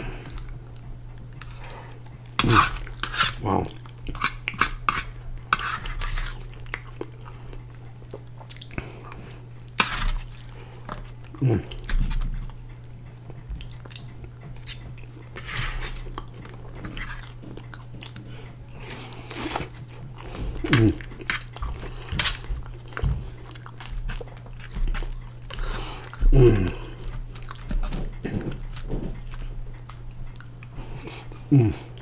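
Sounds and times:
steady low hum: 0.0s - 32.0s
wet chewing: 0.0s - 32.0s
metal fork scraping foil tray: 2.4s - 3.4s, 4.2s - 6.4s, 15.4s - 16.1s.

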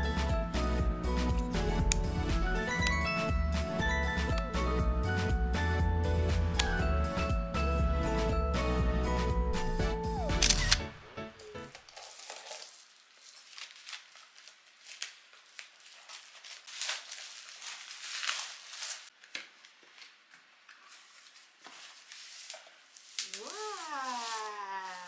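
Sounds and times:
plastic crinkling and tearing: 11.4s - 25.0s
cutter slitting plastic pouch: 11.8s - 20.2s.

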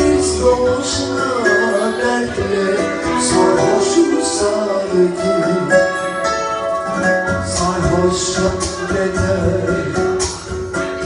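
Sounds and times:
amplified backing music with beat: 0.0s - 11.0s.

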